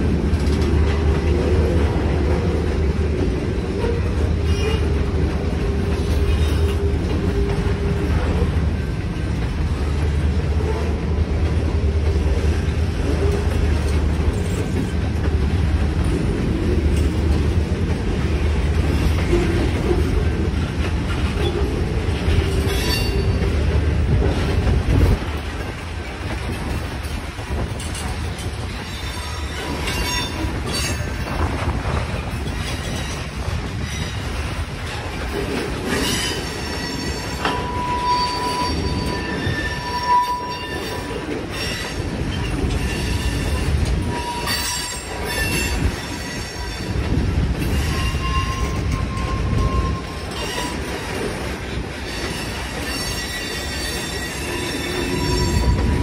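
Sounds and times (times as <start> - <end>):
train wheels rumbling on rail: 0.0 - 56.0
high wheel squeals: 36.0 - 46.9, 47.7 - 50.9, 52.1 - 56.0.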